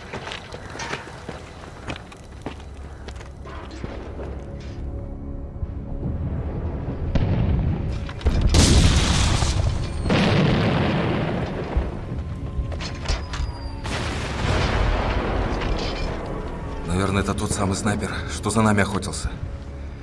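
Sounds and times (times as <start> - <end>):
low music drone: 1.9 - 8.8, 11.2 - 20.0
distant explosion booms: 6.2 - 7.9, 8.5 - 12.3.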